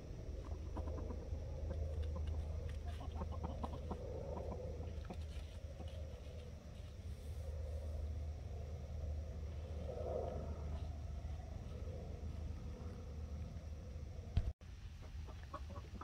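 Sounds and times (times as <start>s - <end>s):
low background rumble: 0.0s - 15.7s
chickens clucking: 0.4s - 6.5s, 15.0s - 16.0s.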